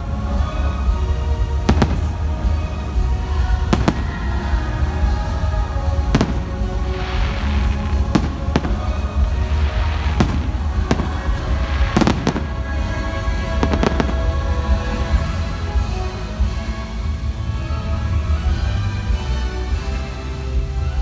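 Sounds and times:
crackling hiss of bursts: 0:00.0 - 0:21.0
show music: 0:00.0 - 0:21.0
fireworks bursting: 0:00.8 - 0:16.0.

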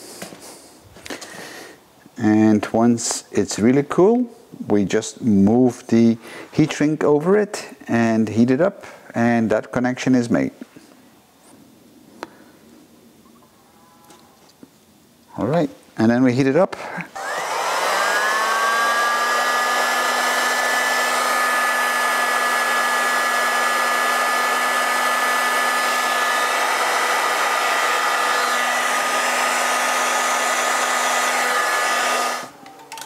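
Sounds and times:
heat gun fan whine and hiss: 0:16.8 - 0:32.6.

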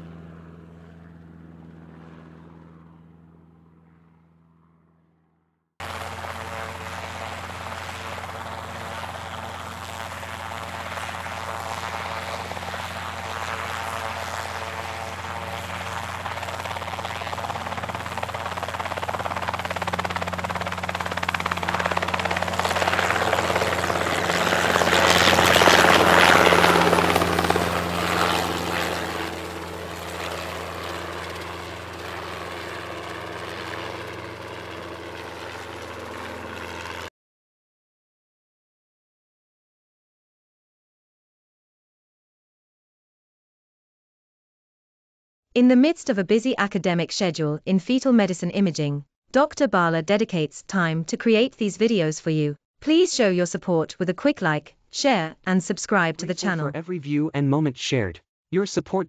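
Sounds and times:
helicopter rotor and turbine: 0:00.0 - 0:37.1.

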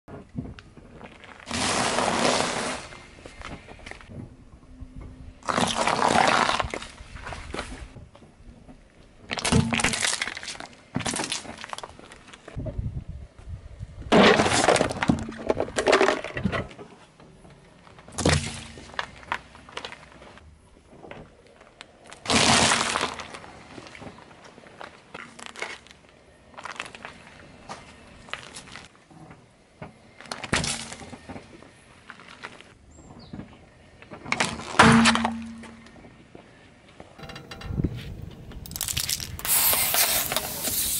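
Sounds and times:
crackling: 0:37.2 - 0:40.9
sachet bursting under tyre: 0:38.6 - 0:40.9.

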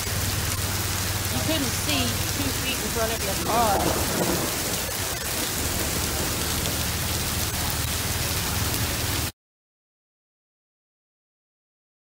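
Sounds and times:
hail and heavy rain on pavement: 0:00.0 - 0:09.3.

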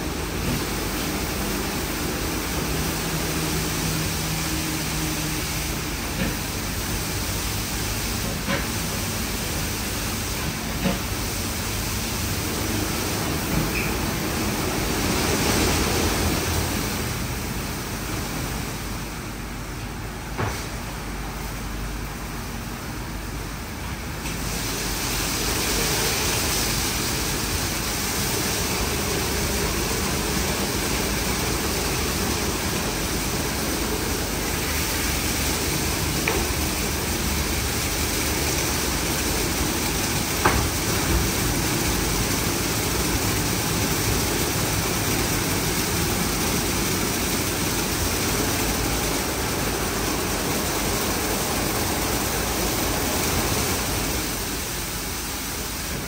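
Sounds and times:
car wash water and machinery: 0:00.0 - 0:56.0.

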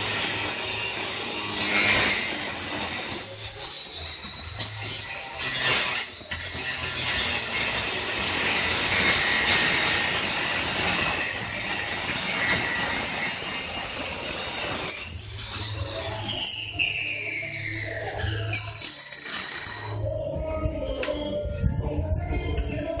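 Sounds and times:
angle grinder grinding tile: 0:00.0 - 0:20.0.

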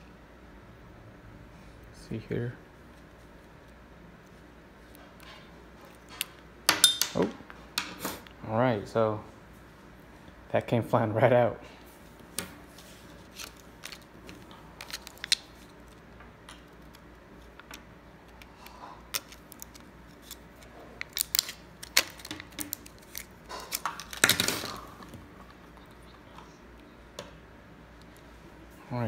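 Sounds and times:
plastic blister pack crinkling: 0:12.7 - 0:25.7
packaging tearing: 0:13.2 - 0:16.0, 0:19.1 - 0:25.1.

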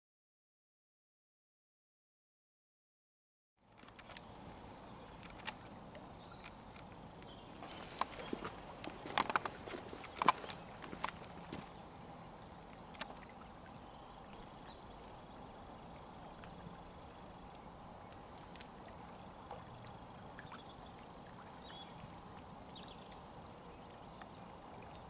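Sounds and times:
small clicks: 0:03.7 - 0:04.3, 0:05.2 - 0:05.7
lake water lapping: 0:03.8 - 0:25.0
distant bird chirps: 0:04.1 - 0:17.7.

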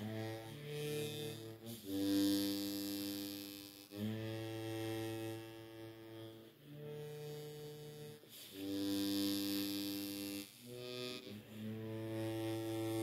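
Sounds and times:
harmonica playing low notes: 0:00.0 - 0:13.0.

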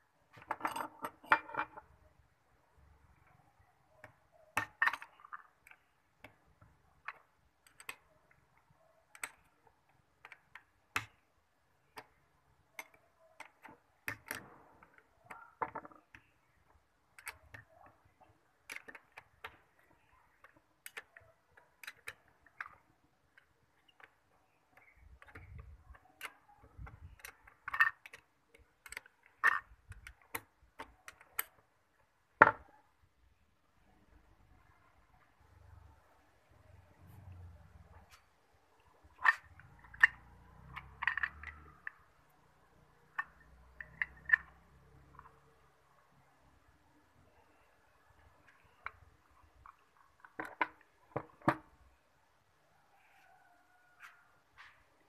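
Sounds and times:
tools clicking and knocking: 0:00.3 - 0:01.9, 0:03.9 - 0:32.7, 0:38.0 - 0:45.6, 0:48.3 - 0:51.8.

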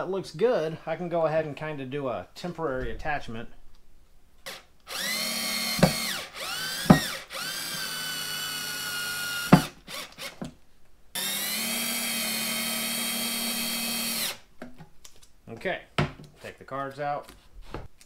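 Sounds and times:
cordless drill motor whining: 0:04.4 - 0:10.5, 0:11.2 - 0:14.4.

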